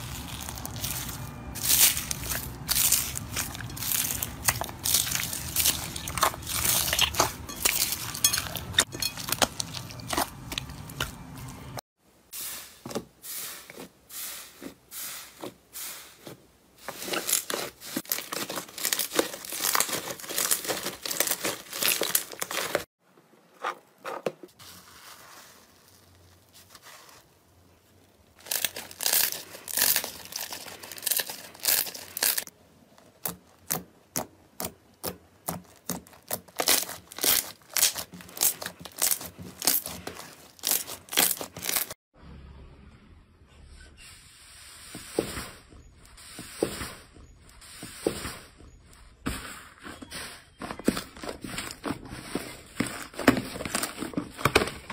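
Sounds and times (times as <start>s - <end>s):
slime squelching and popping: 0.0s - 11.6s
floam slime crackling: 0.0s - 11.8s, 16.8s - 22.9s, 35.0s - 42.0s.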